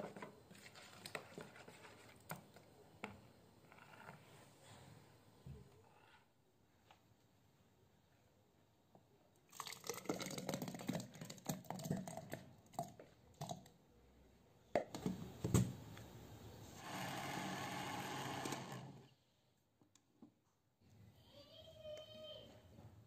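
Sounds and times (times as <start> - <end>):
water poured into glass jar: 9.5 - 12.9
blender motor running: 16.8 - 19.1.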